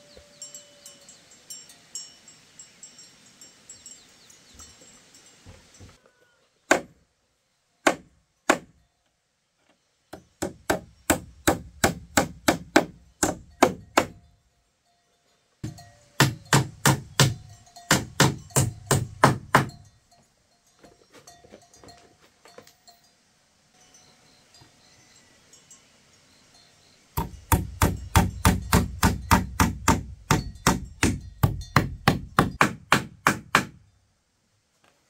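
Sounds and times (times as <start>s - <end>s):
tool striking wood: 6.7s - 7.0s, 7.8s - 8.8s, 10.1s - 14.2s, 15.6s - 19.8s, 27.2s - 33.8s.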